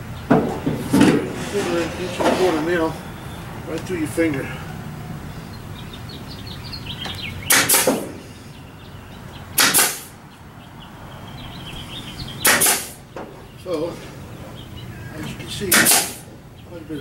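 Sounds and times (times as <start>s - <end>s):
nail gun firing: 7.5s - 8.1s, 9.6s - 10.1s, 12.4s - 13.0s, 15.7s - 16.3s.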